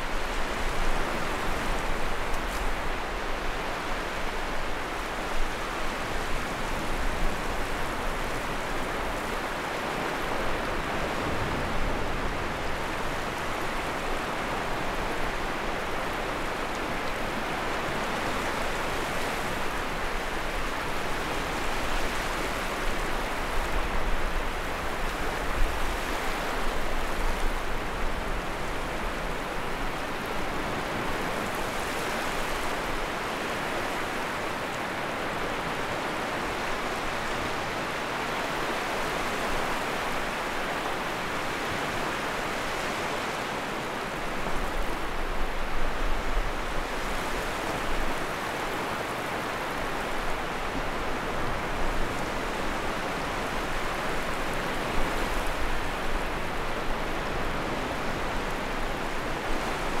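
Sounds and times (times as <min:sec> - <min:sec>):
sea waves washing onto shore: 0:00.0 - 1:00.0.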